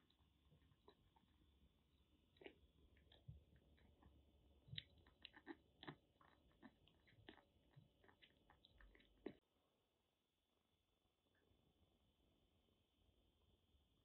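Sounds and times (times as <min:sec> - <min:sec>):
kitten chewing wet food: 0:00.0 - 0:09.5.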